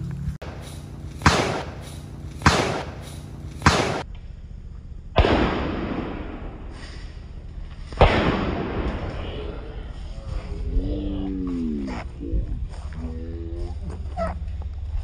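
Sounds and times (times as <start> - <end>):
sharp outdoor bangs with echo: 0.4 - 4.4, 5.1 - 10.0.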